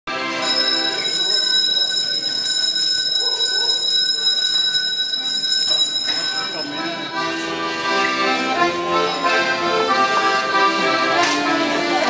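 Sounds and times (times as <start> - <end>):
accordion sustained chord: 0.1 - 1.5, 5.9 - 12.0
people's voices: 0.1 - 12.0.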